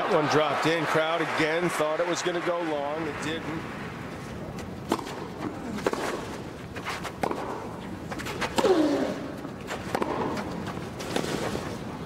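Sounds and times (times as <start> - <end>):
racket hitting tennis ball: 4.5 - 11.8.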